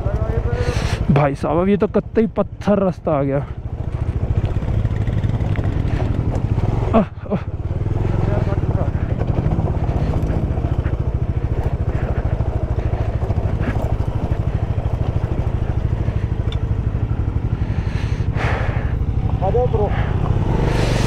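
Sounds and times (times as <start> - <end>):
motorcycle engine at low revs: 0.0 - 21.0
rush of noise: 11.8 - 21.0.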